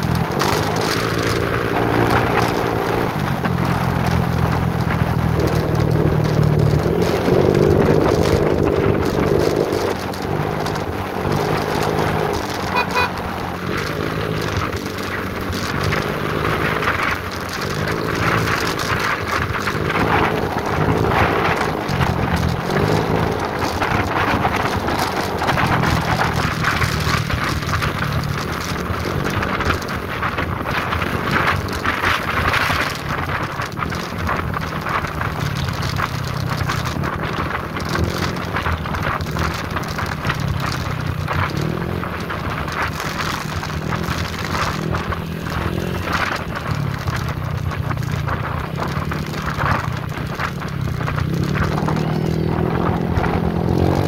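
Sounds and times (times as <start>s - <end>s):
motorcycle engine humming: 0.0s - 54.0s
wind rushing over microphone: 0.0s - 54.0s.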